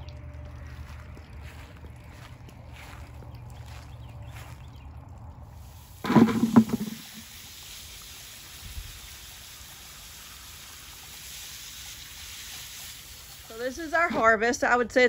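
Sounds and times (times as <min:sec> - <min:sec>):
hose nozzle spraying water: 0:05.6 - 0:14.3.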